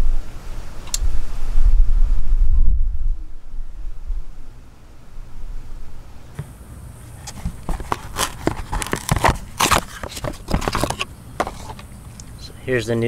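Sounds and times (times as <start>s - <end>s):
cardboard and paper crinkling: 7.1s - 12.0s.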